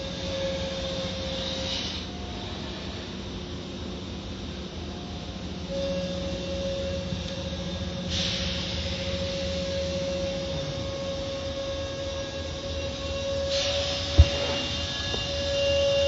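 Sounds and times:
machinery high whine: 0.0s - 16.0s
hiss of spray or blowing air: 1.4s - 2.1s, 8.1s - 9.1s.

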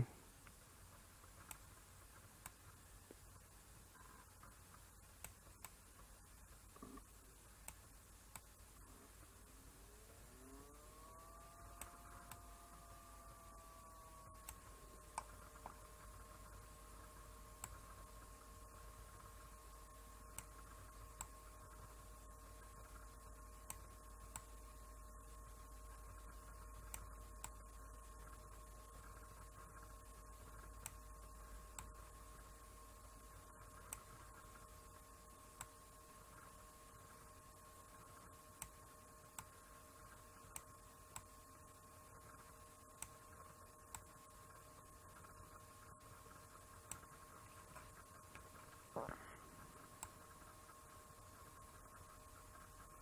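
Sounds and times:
low electrical hum: 0.0s - 53.0s
computer mouse clicks: 0.4s - 8.9s, 10.6s - 24.9s, 25.5s - 32.6s, 33.2s - 53.0s.

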